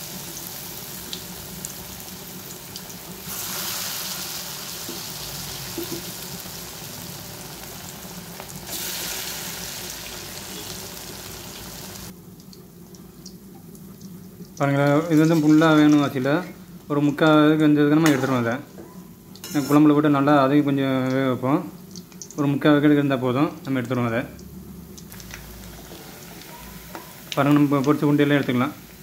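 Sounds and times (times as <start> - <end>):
fritters sizzling in hot oil: 0.0 - 16.5, 23.7 - 29.0.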